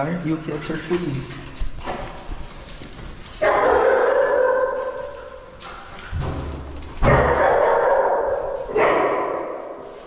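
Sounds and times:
dog long bark: 0:03.4 - 0:05.0, 0:07.0 - 0:09.7.

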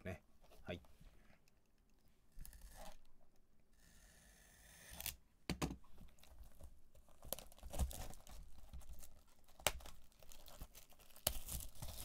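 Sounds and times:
packaging crinkling and tearing: 0:06.2 - 0:12.0.

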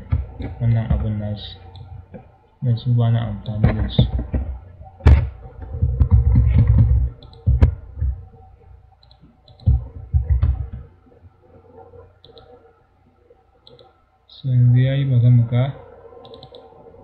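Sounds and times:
computer mouse clicks: 0:03.4 - 0:08.2, 0:09.0 - 0:10.9, 0:11.8 - 0:12.6, 0:13.6 - 0:14.0, 0:16.2 - 0:16.7.

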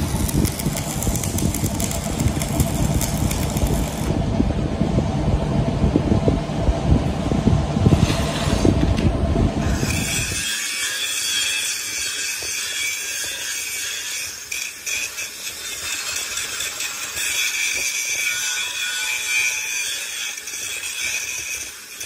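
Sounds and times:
power tool grinding steel: 0:00.0 - 0:04.2, 0:09.6 - 0:22.0.

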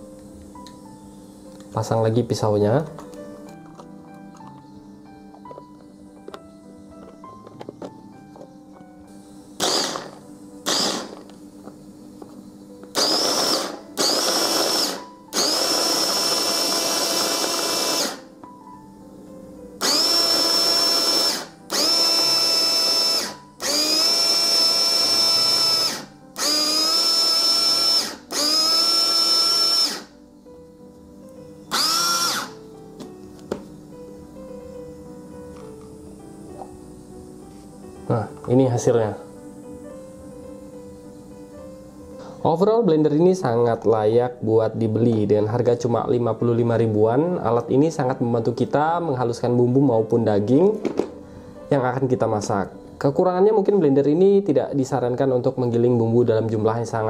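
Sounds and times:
food processor motor whirring: 0:09.6 - 0:11.2, 0:13.0 - 0:18.2, 0:19.8 - 0:30.1, 0:31.7 - 0:32.6.

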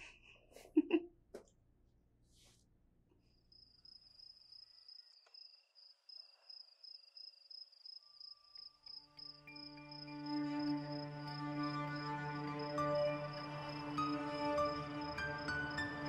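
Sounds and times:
faint crickets chirping: 0:03.2 - 0:16.0
soft music: 0:08.3 - 0:16.0.

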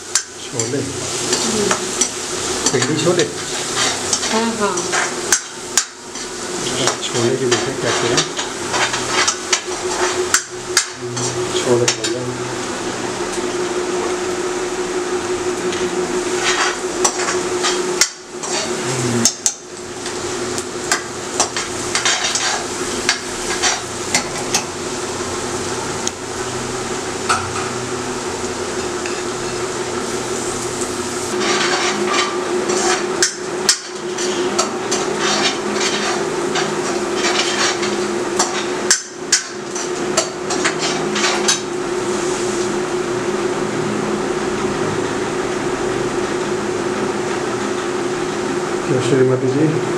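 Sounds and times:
onions frying: 0:00.0 - 0:49.1
steady hum: 0:00.0 - 0:49.9
spatula scraping metal pan: 0:00.6 - 0:05.2, 0:06.1 - 0:10.2, 0:16.3 - 0:20.2, 0:21.4 - 0:24.6, 0:31.3 - 0:38.8, 0:39.4 - 0:41.6.

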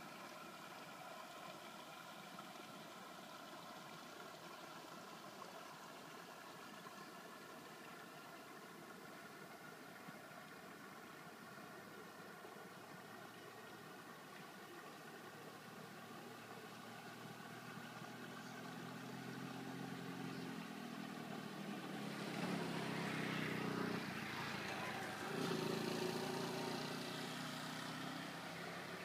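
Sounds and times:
vehicle engine passing by: 0:15.7 - 0:29.0.

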